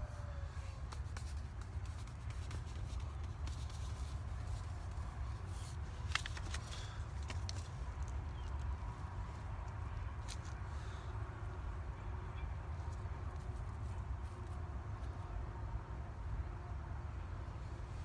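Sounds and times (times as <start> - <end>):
paper seed packet rustling: 0.9 - 8.6
seeds ticking onto soil: 5.7 - 10.6.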